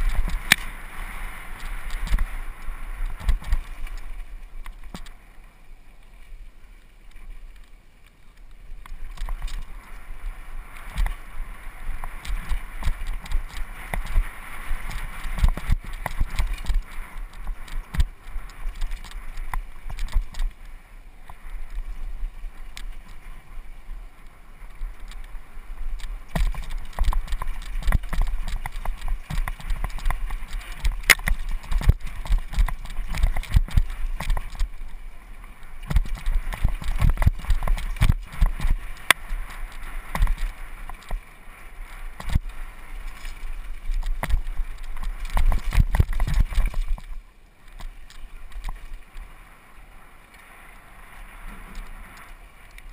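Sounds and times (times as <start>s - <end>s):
tyre noise on dirt: 26.1s - 34.9s
mountain bike rattling and knocking: 26.3s - 34.7s, 35.9s - 38.8s.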